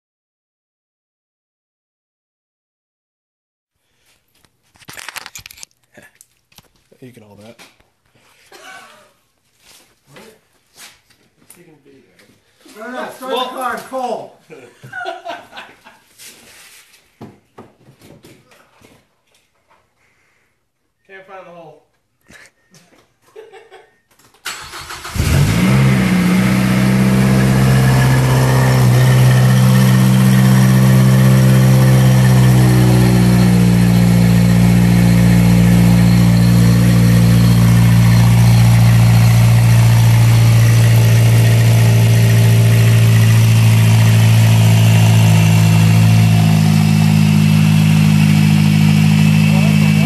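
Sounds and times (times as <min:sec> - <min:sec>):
car engine cranking and starting: 0:24.4 - 0:50.0
car engine idling: 0:24.7 - 0:50.0.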